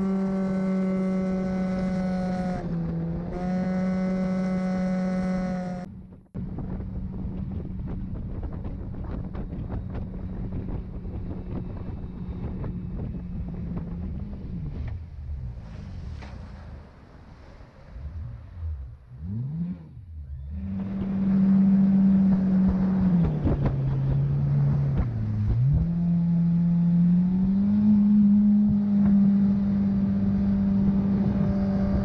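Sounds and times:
outboard engine whine: 0:00.0 - 0:32.0
wind noise: 0:05.9 - 0:18.4, 0:20.7 - 0:26.0, 0:28.5 - 0:32.0.

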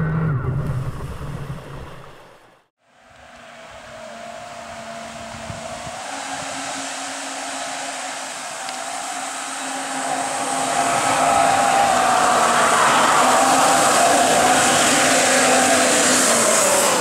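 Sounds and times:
electric jet drive whine: 0:02.9 - 0:17.0
hiss of water spray: 0:05.6 - 0:17.0.

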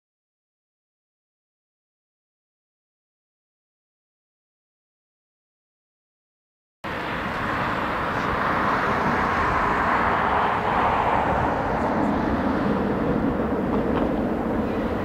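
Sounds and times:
airliner jet engine noise: 0:06.8 - 0:15.0.

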